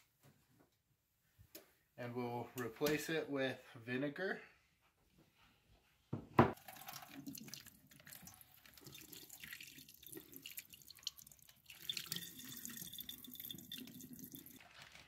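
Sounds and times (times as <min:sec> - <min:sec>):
brine trickling into sink drain: 0:06.6 - 0:15.0.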